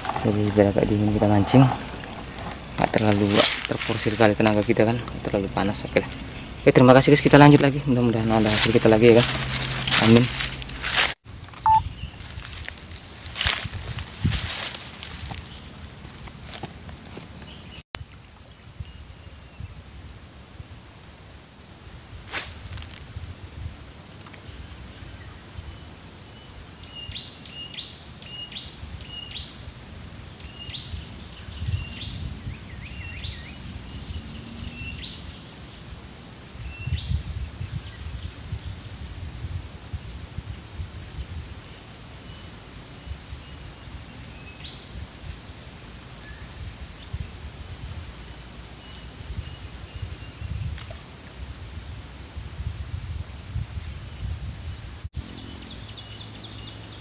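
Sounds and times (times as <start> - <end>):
low rumble of outdoor air: 0.0 - 57.0
short bird chirps: 11.6 - 12.1.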